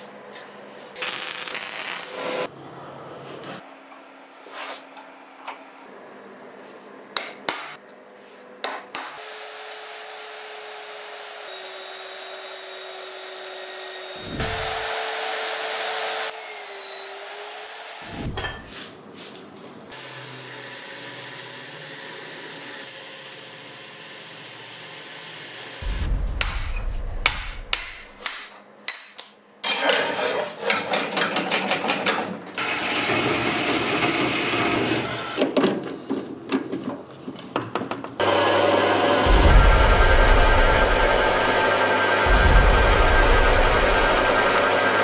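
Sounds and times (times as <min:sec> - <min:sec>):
power tool running: 0:09.2 - 0:18.4, 0:19.9 - 0:28.2, 0:32.6 - 0:35.4, 0:38.2 - 0:45.0
sharp knocks: 0:25.8 - 0:28.5.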